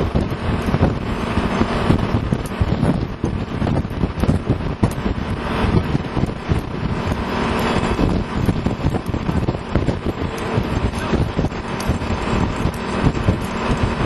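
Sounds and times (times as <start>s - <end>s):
diesel truck engine running: 0.0s - 14.0s
wind buffeting microphone: 0.0s - 14.0s.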